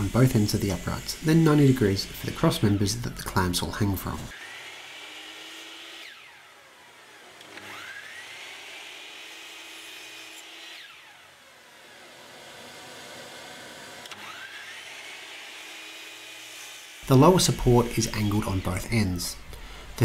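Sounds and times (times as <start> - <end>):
miter saw motor whining: 0.0 - 20.0.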